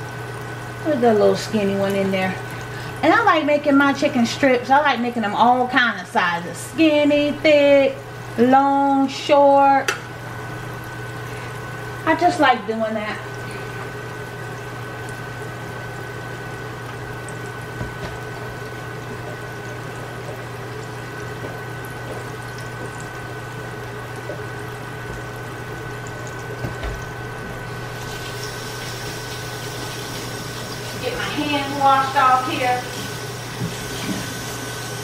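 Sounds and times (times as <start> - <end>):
food sizzling in hot oil: 27.7 - 35.0.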